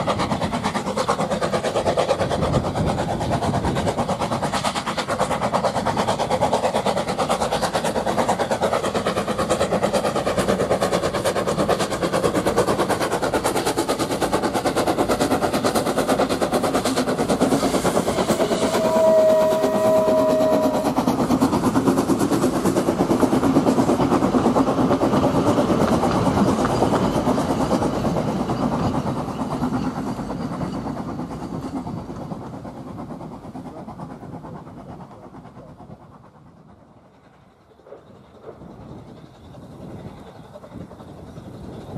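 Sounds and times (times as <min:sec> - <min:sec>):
steam locomotive exhaust beats: 0:00.0 - 0:41.9
brief high tone: 0:18.4 - 0:20.9.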